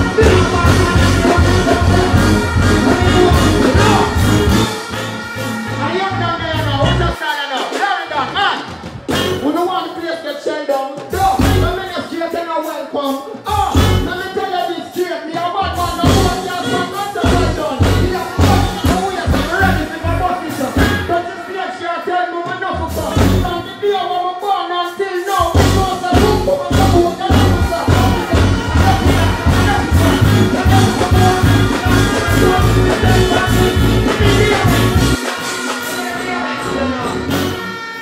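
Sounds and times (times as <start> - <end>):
bass and kick drum: 0.0 - 4.8, 11.4 - 11.8, 13.8 - 14.1, 16.0 - 16.4, 17.3 - 21.1, 23.0 - 23.5, 25.5 - 35.2
man singing into microphone: 0.0 - 4.8, 9.4 - 37.9
live reggae band music: 0.0 - 38.0.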